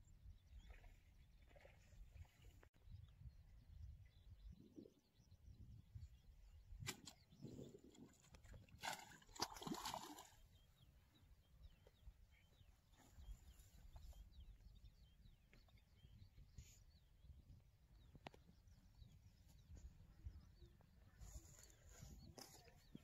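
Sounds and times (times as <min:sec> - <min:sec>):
small birds chirping: 0:00.0 - 0:23.0
fish splashing out of water: 0:08.7 - 0:10.4.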